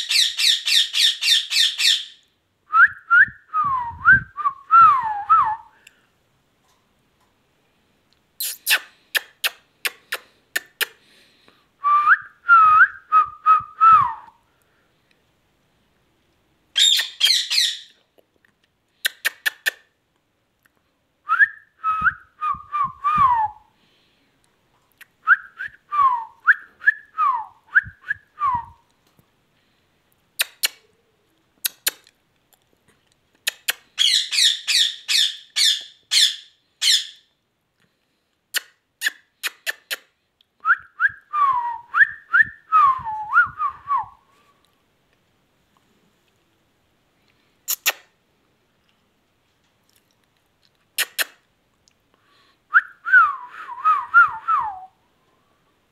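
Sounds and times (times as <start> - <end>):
parakeet calling: 0.0 - 2.2, 16.8 - 17.9, 34.0 - 37.2.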